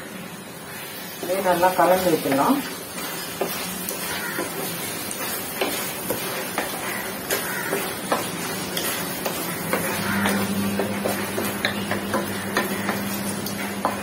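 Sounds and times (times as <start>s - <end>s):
food sizzling: 0.0s - 14.0s
spatula scraping steel pan: 2.3s - 13.1s.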